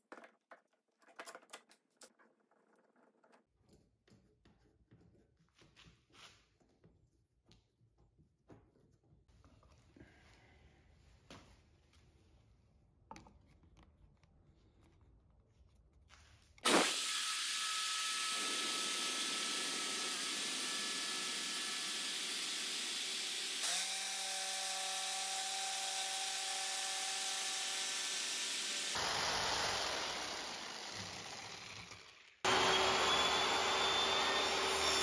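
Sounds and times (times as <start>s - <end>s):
jigsaw cutting wood: 16.6s - 35.0s.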